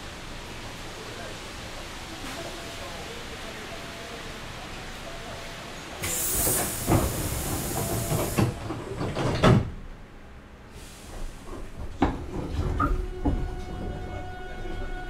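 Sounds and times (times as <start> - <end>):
train doors closing with air hiss: 0.5 - 9.9, 10.7 - 13.9.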